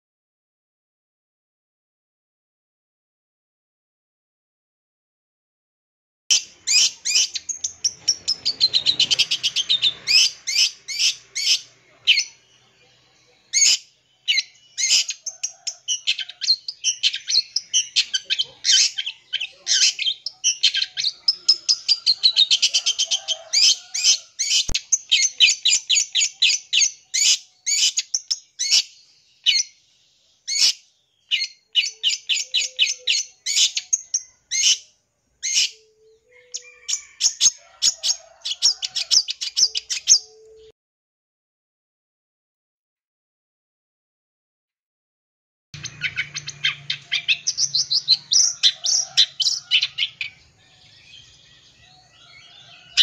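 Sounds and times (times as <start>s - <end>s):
bird singing varied song: 6.3s - 40.7s, 45.8s - 53.0s.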